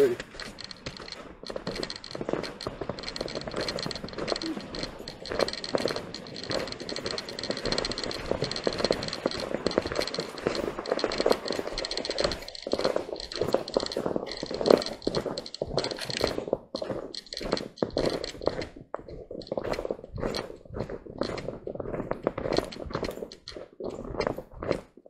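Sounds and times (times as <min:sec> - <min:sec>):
footsteps crunching on gravel: 0:00.0 - 0:25.0.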